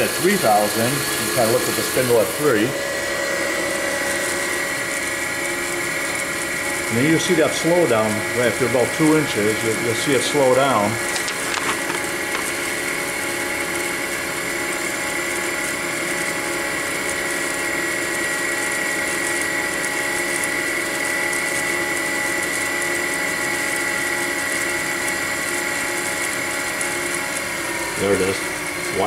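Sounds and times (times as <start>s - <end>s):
drilling machine high whine: 0.0s - 29.0s.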